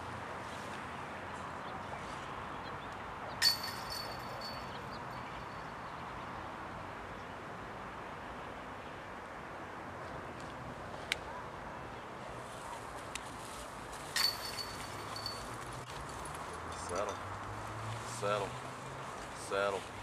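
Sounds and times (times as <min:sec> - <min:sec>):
distant road traffic: 0:00.0 - 0:20.0
sharp metallic clink: 0:03.4 - 0:05.6, 0:14.2 - 0:15.6.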